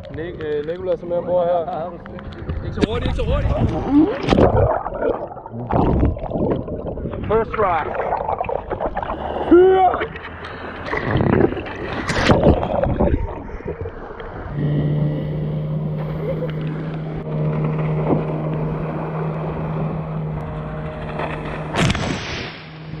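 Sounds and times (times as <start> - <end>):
water splashing against inflatable: 1.8 - 14.5
outboard motor running: 14.2 - 23.0.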